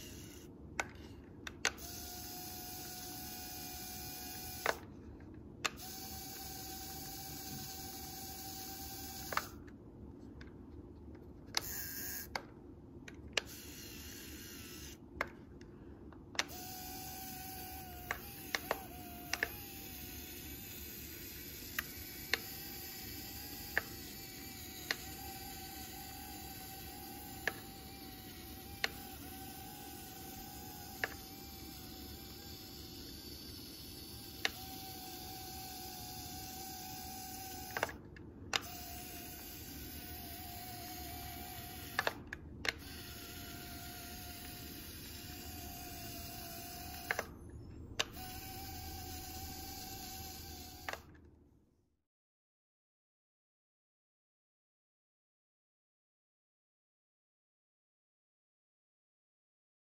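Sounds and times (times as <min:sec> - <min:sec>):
faint electric motor whine: 0:00.0 - 0:51.2.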